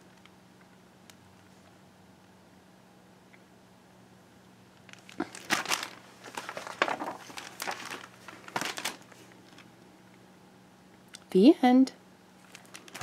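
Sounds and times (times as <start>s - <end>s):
book pages crinkling and rustling: 4.8s - 9.7s, 12.4s - 13.0s.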